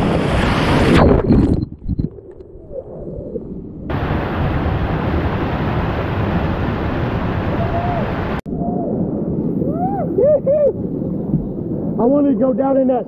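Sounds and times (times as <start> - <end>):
whitewater rapids rushing: 3.9 - 8.4.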